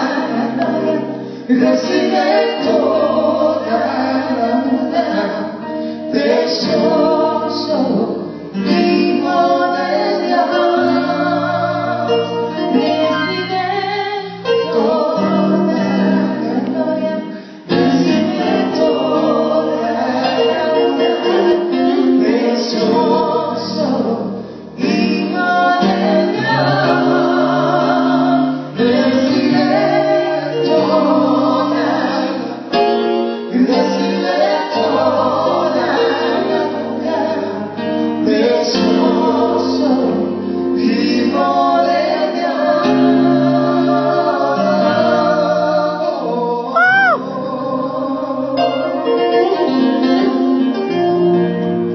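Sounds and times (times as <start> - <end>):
live music with singing: 0.0 - 51.9.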